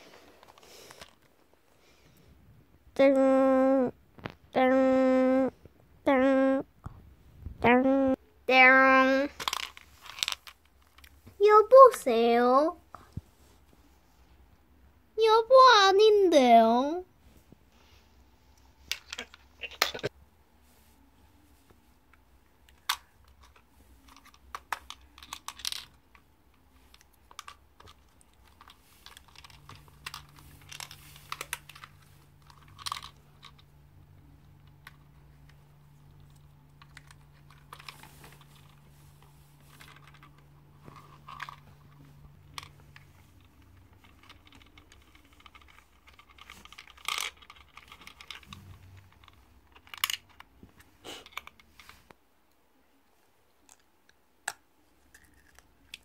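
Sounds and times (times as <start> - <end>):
faint low hum: 0.0 - 56.0.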